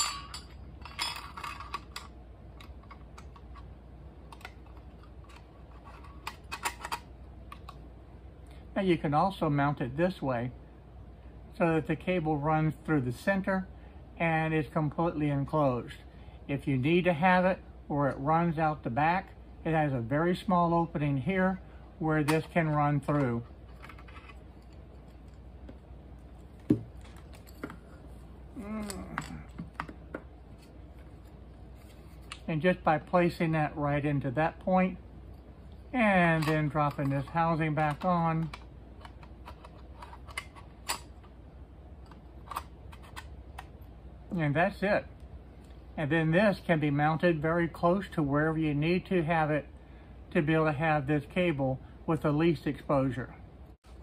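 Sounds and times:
person humming: 0:28.6 - 0:29.6.

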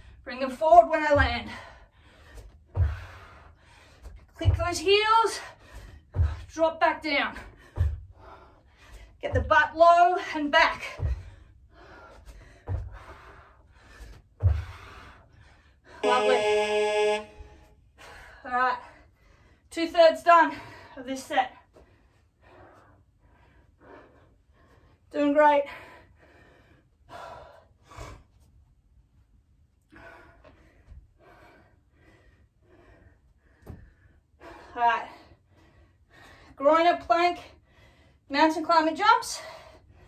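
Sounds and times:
buzzy electronic timer tone: 0:16.0 - 0:17.6
person breathing hard: 0:25.7 - 0:28.5, 0:29.9 - 0:36.6.

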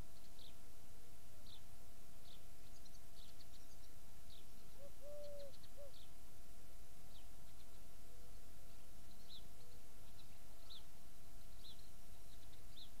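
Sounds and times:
small birds chirping: 0:00.0 - 0:00.7, 0:01.4 - 0:06.2, 0:07.0 - 0:13.0
dove cooing: 0:04.8 - 0:06.0.

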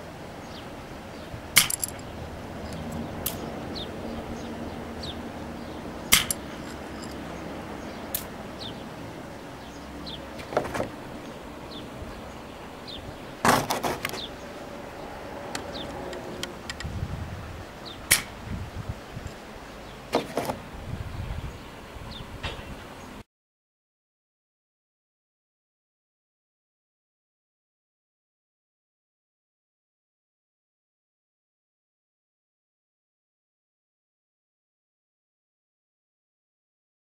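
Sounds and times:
airgun pops: 0:06.1 - 0:06.4.

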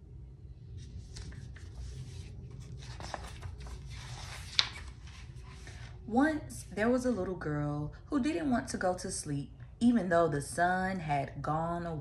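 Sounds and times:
book pages rustling: 0:00.7 - 0:06.0.

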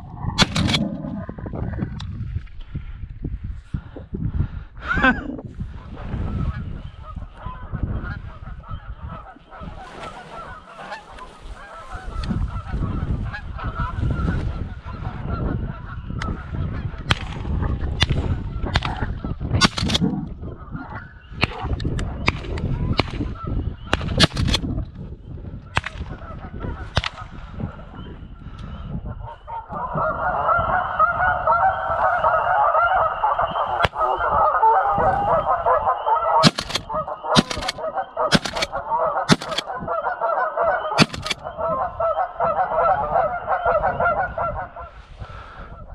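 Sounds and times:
low microphone rumble: 0:00.0 - 0:09.8, 0:12.0 - 0:36.0
sharp clicks: 0:00.4 - 0:01.1, 0:19.6 - 0:20.1, 0:23.9 - 0:24.6, 0:36.4 - 0:39.7, 0:41.0 - 0:41.4
geese honking: 0:06.3 - 0:20.0, 0:29.1 - 0:45.9.

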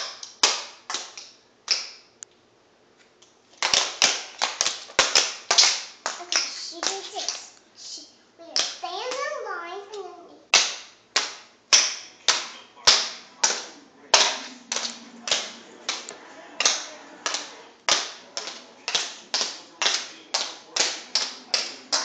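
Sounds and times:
tap shoes on tile floor: 0:03.5 - 0:07.6, 0:08.5 - 0:09.4, 0:10.5 - 0:22.0.

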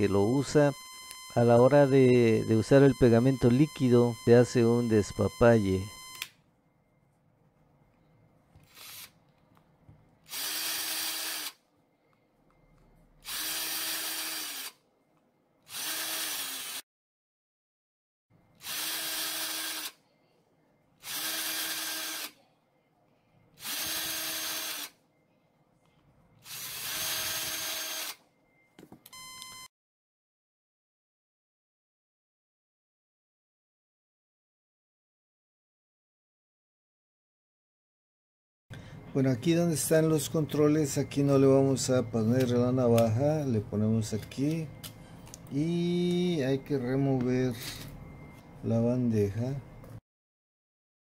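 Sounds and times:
cordless drill motor whirring: 0:08.7 - 0:09.2, 0:10.3 - 0:11.6, 0:13.2 - 0:14.8, 0:15.7 - 0:16.8, 0:18.6 - 0:20.0, 0:21.0 - 0:22.4, 0:23.6 - 0:25.0, 0:26.4 - 0:28.2.

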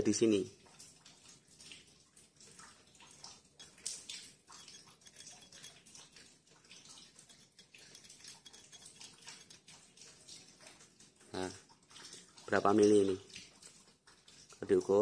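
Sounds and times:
caliper ticking on metal: 0:03.6 - 0:05.8, 0:07.0 - 0:09.7.

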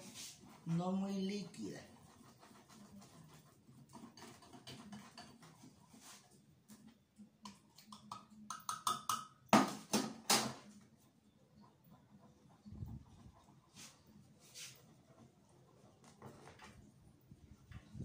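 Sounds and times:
whisk clicking and scraping bowl: 0:00.0 - 0:09.2.

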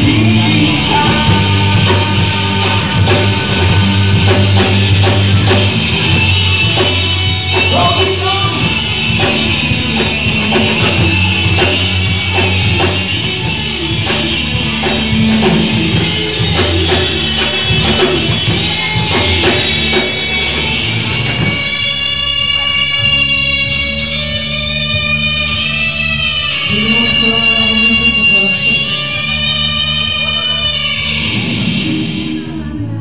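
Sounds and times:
drum kit hits: 0:00.0 - 0:23.4
live rock band playing: 0:00.0 - 0:33.0.

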